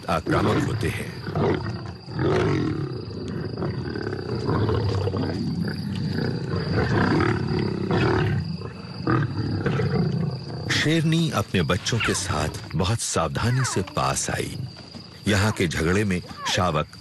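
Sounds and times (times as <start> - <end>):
lions growling: 0.0 - 12.8.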